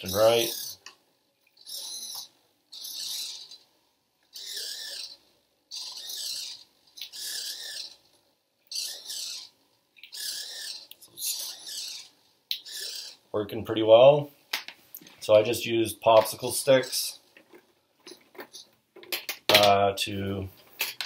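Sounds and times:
servo motors whirring: 0:00.0 - 0:00.8, 0:01.6 - 0:03.6, 0:04.3 - 0:08.0, 0:08.7 - 0:09.5, 0:10.1 - 0:13.2.

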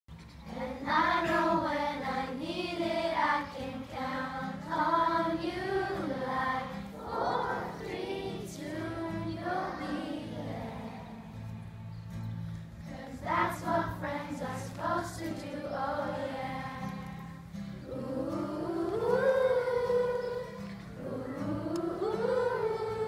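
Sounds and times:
acoustic guitar: 0:00.1 - 0:23.0
children singing in chorus: 0:00.5 - 0:11.6, 0:12.8 - 0:23.0.

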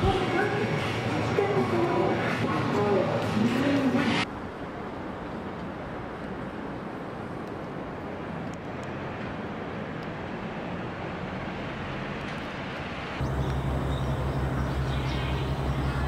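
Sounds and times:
city traffic noise: 0:00.0 - 0:16.0
low throbbing hum: 0:13.2 - 0:16.0.

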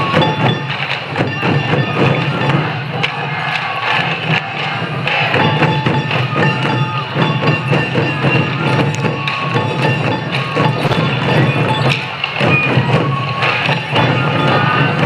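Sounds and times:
bamboo flute notes: 0:00.0 - 0:04.1, 0:05.2 - 0:15.0
taiko drums beating: 0:00.0 - 0:15.0.

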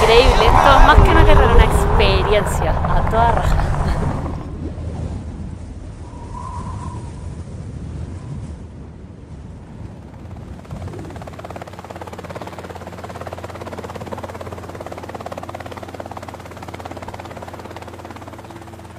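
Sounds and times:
helicopter rotor chop: 0:00.0 - 0:05.0, 0:10.0 - 0:18.9.

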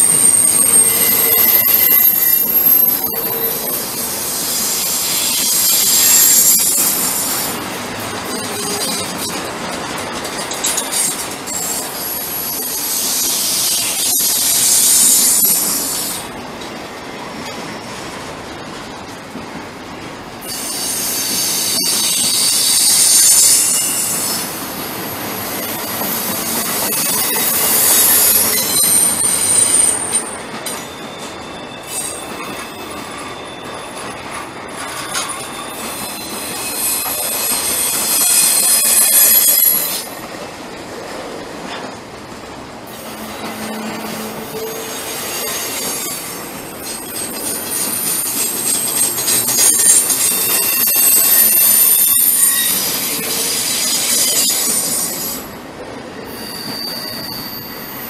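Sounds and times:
train wheels squealing: 0:00.0 - 0:07.7, 0:10.4 - 0:16.4, 0:20.4 - 0:40.5, 0:42.9 - 0:58.0
freight cars rolling: 0:00.0 - 0:13.2
wheels clicking on rail: 0:00.0 - 0:55.6.

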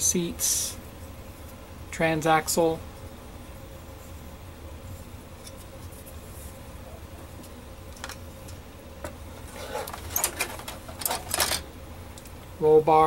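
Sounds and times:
low steady hum: 0:00.0 - 0:13.0
plastic parts clicking and rustling: 0:09.5 - 0:11.6.

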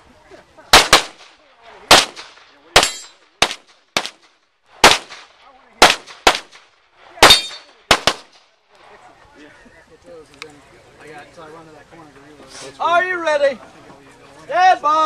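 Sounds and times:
handgun shots: 0:00.8 - 0:01.3, 0:01.9 - 0:04.2, 0:04.8 - 0:06.6, 0:07.2 - 0:08.3
metallic ring of steel targets: 0:02.8 - 0:03.2, 0:07.2 - 0:07.8.

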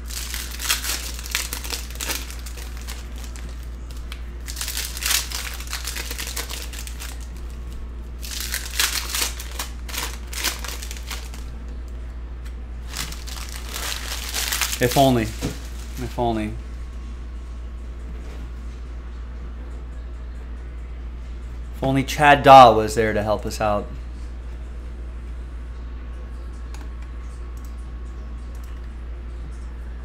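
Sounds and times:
foil wrappers crinkling and tearing: 0:00.0 - 0:11.5, 0:12.9 - 0:16.4
steady low hum: 0:00.0 - 0:30.0.

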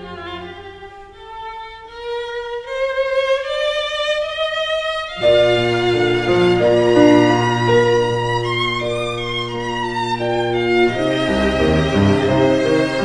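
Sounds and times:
instrumental background music: 0:05.0 - 0:13.0.

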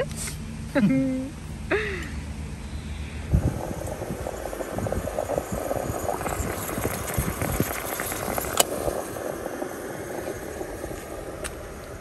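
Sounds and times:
gas stove hissing: 0:02.8 - 0:12.0.

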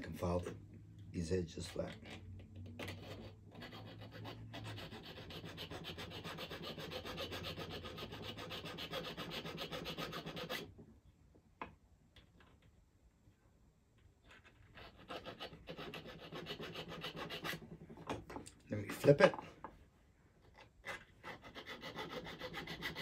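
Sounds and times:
hand file rasping on metal: 0:02.8 - 0:10.7, 0:14.7 - 0:17.8, 0:20.8 - 0:23.0.

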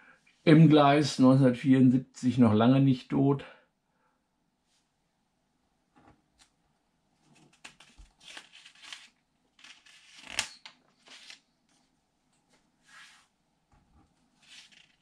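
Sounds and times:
paper rustling and crinkling: 0:07.2 - 0:11.9, 0:14.4 - 0:15.0
paper page snapping: 0:07.4 - 0:11.4.

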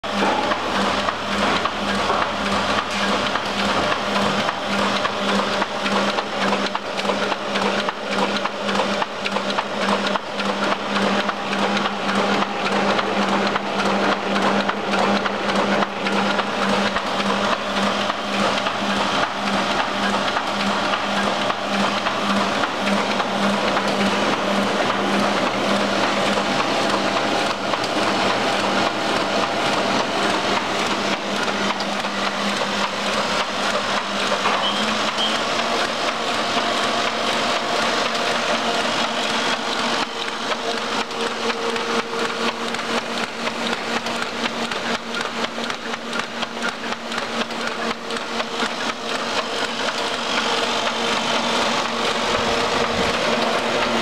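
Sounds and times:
printing press running: 0:00.0 - 0:54.0.

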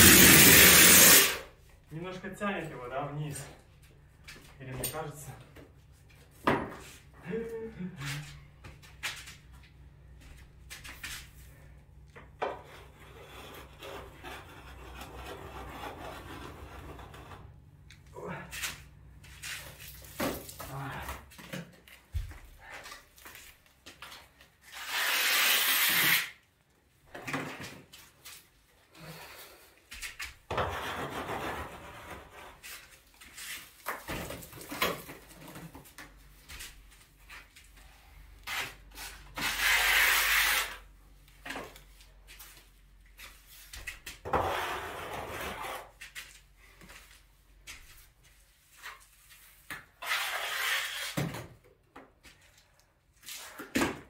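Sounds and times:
compressed air hissing blasts: 0:00.0 - 0:01.4
wet plaster scraping: 0:12.6 - 0:17.5, 0:38.5 - 0:40.8, 0:50.0 - 0:51.2.

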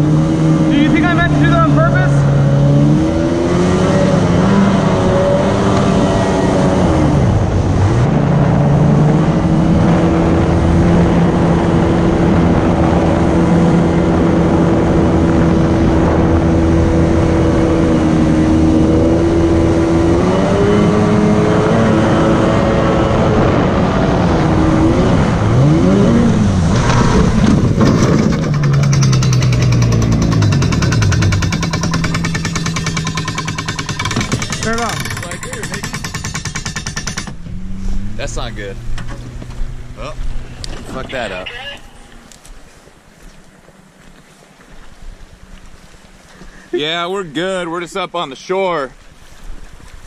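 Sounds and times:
boat jet motor running: 0:00.0 - 0:37.8.

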